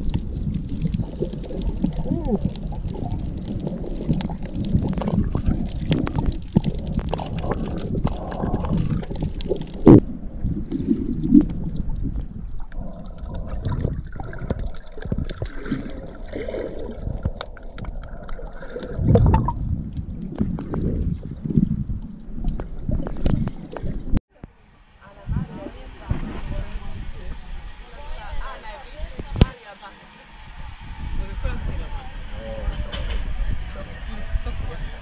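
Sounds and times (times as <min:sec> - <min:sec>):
underwater water sloshing: 0:00.0 - 0:24.2.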